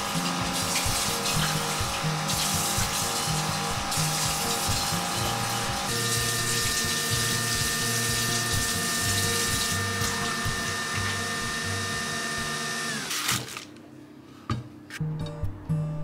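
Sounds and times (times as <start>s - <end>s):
coffee machine whirring: 0.0s - 13.7s.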